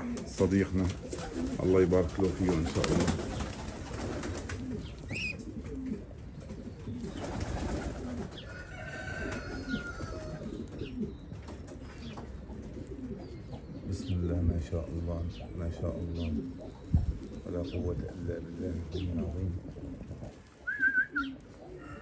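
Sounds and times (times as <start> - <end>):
pigeons cooing: 0.0 - 22.0
pigeon chirps: 2.8 - 8.6, 9.3 - 14.4, 20.6 - 22.0.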